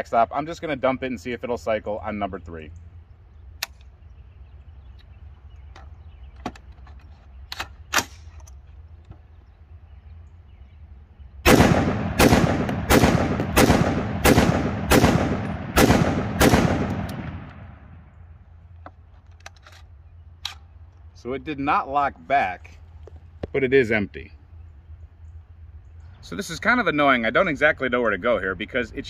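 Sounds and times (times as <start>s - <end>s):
rifle shots with echo: 11.4s - 18.1s
rifle handling clicks: 18.7s - 21.1s.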